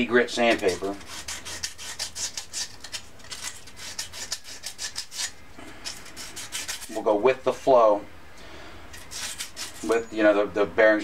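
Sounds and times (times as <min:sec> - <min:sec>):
sandpaper rasping on metal: 0:00.3 - 0:07.0, 0:09.0 - 0:10.0.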